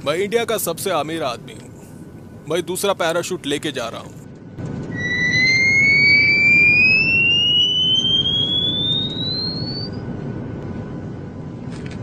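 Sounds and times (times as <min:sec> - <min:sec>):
steady low rumble: 0:04.2 - 0:12.0
cartoon whistle rising in pitch: 0:04.9 - 0:10.0.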